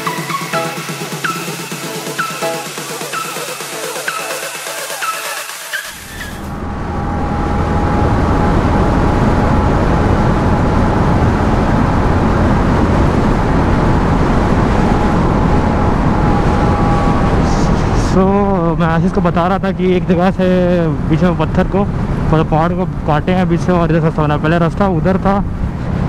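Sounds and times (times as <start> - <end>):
electronic dance music: 0.0 - 6.5
motorcycle running at speed: 5.9 - 26.0
wind rushing: 6.0 - 23.8.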